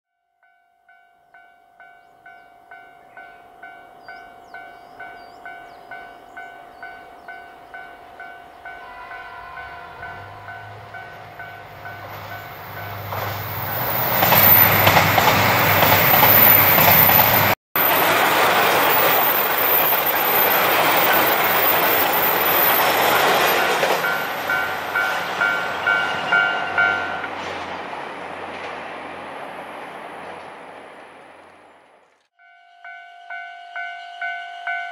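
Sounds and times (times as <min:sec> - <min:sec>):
level crossing warning bell: 0:00.2 - 0:13.2, 0:20.1 - 0:27.3, 0:32.4 - 0:34.9
diesel train passing: 0:00.9 - 0:32.1.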